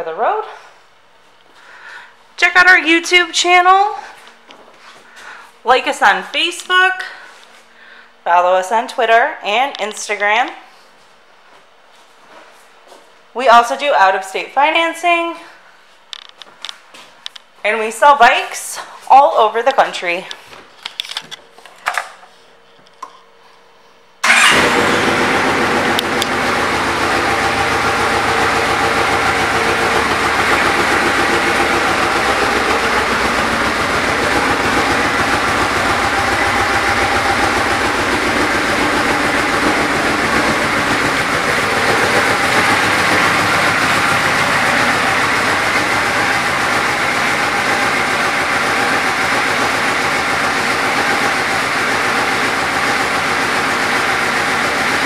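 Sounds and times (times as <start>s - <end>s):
motorcycle engine idling: 24.2s - 55.0s.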